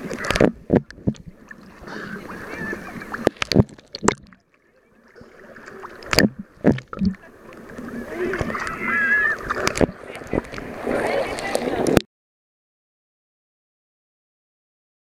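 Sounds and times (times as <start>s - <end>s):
sharp water splashes: 0.0s - 12.0s
waves sloshing and splashing: 0.0s - 12.0s.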